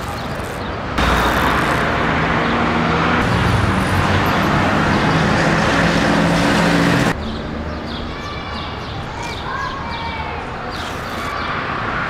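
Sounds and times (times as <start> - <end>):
road noise rushing: 0.0 - 7.7.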